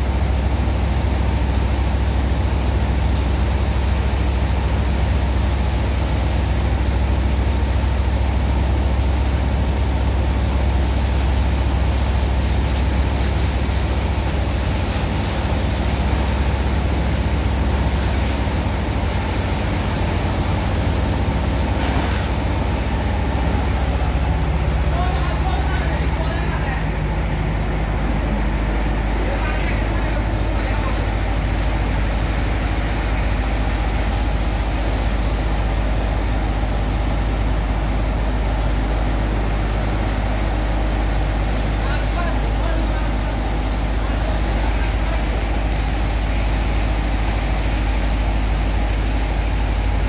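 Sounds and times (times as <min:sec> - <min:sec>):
pump engine droning: 0:00.0 - 0:50.0
water jets hissing and splashing: 0:00.0 - 0:50.0.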